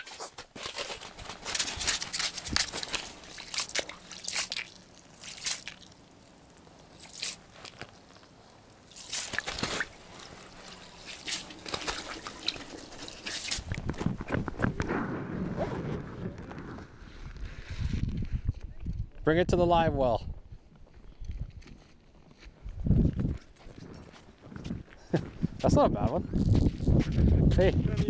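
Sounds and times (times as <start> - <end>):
water sloshing and dripping: 0.7 - 13.9.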